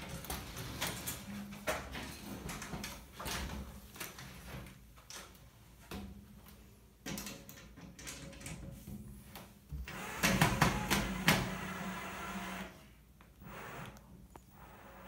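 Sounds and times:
sliding door knocking and rattling: 10.0s - 11.8s.

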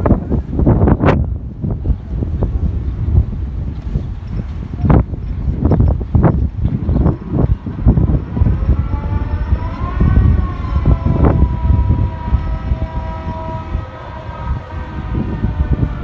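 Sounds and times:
wind buffeting microphone: 0.0s - 16.0s
distant high whine: 6.2s - 16.0s.

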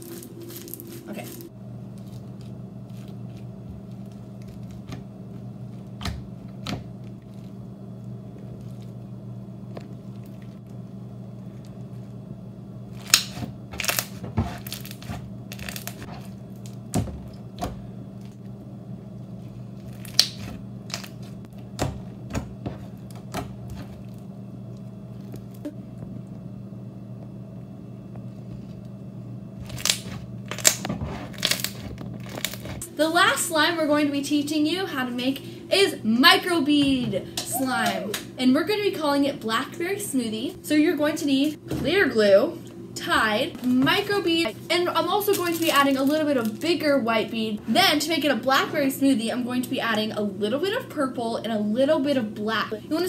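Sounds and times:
slime crackling and popping: 0.0s - 3.2s, 13.0s - 16.8s, 19.8s - 21.4s, 29.6s - 32.8s
steady low hum: 0.0s - 53.0s.

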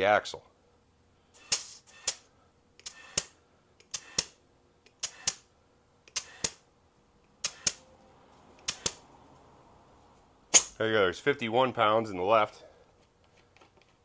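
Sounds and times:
air chuck clicks: 7.4s - 7.8s.

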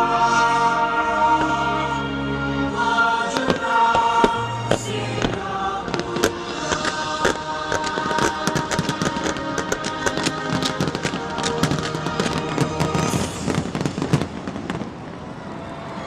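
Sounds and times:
fireworks bursting: 3.2s - 15.6s.

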